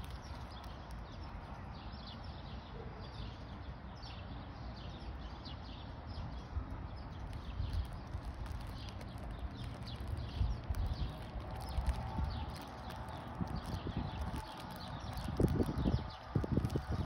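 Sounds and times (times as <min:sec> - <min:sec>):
dog chewing crunchy wrapper: 0:00.0 - 0:01.1, 0:07.2 - 0:17.0
steady low rumble: 0:07.0 - 0:17.0.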